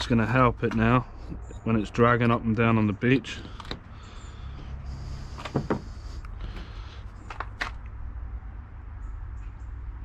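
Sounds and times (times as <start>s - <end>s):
light clicks and knocks: 3.4s - 3.9s, 5.4s - 6.7s.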